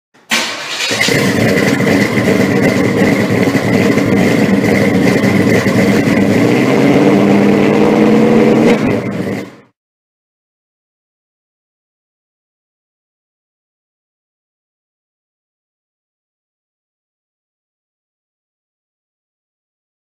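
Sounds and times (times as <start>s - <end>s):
engine running loudly: 0.4s - 9.8s.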